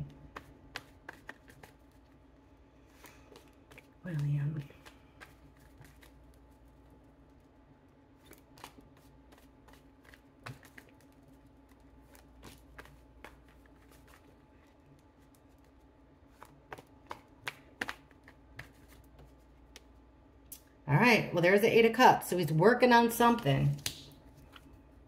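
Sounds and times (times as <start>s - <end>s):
cards being shuffled: 0.0s - 2.2s, 2.8s - 7.4s, 8.2s - 20.0s, 23.7s - 24.7s.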